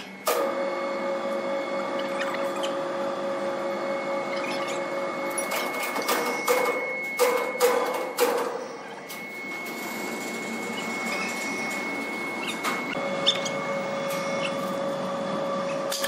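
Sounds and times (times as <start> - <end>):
band sawmill humming and whining: 0.0 - 7.8, 8.8 - 16.0.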